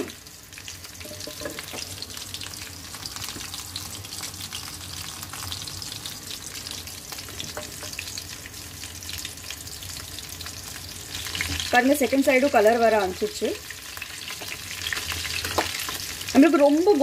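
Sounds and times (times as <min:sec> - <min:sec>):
chicken deep-frying in oil: 0:00.0 - 0:17.0.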